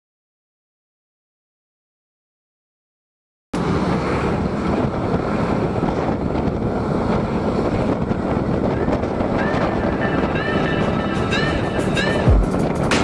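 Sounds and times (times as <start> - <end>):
wind rushing over microphone: 3.6 - 13.0.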